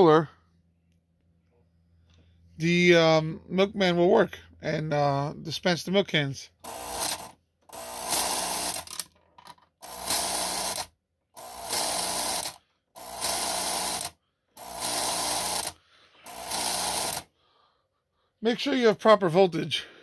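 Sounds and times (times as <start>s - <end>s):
toy train car mechanism buzzing: 6.6s - 17.3s.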